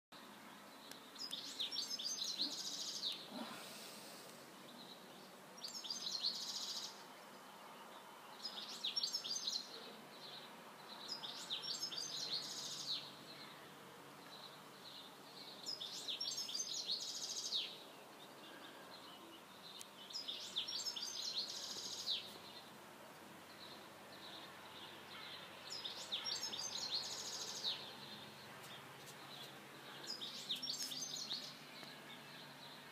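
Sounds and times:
faint steady background hiss: 0.2s - 32.9s
songbird singing high phrase: 8.3s - 13.1s, 19.0s - 22.7s.

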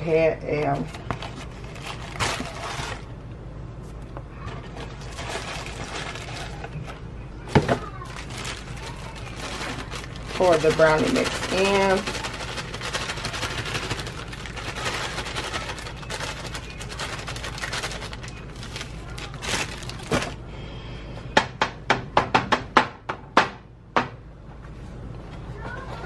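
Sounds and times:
plastic bag crinkling: 0.7s - 3.2s, 4.4s - 20.4s.

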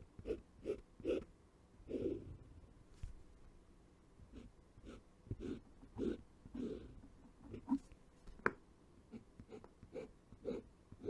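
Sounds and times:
pen nib drawing on paper: 4.3s - 7.8s, 9.1s - 11.0s.

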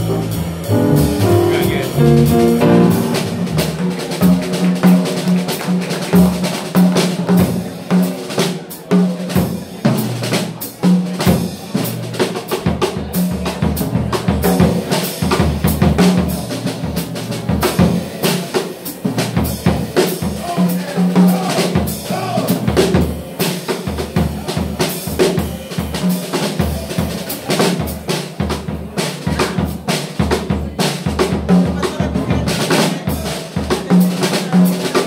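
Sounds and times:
low recurring bass note: 0.0s - 4.0s
bass drum: 0.0s - 5.2s
snare drum strokes: 0.0s - 7.5s
live jazz: 0.0s - 35.0s.

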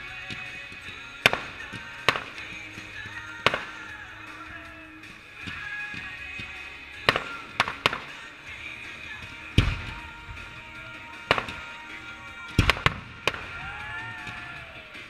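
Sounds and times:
fireworks bursting with sharp bangs: 0.0s - 15.0s.

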